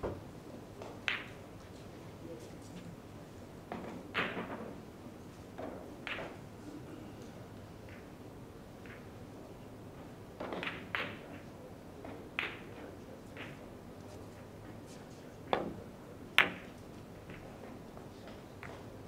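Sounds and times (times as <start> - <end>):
billiard balls clicking: 0.8 - 1.4.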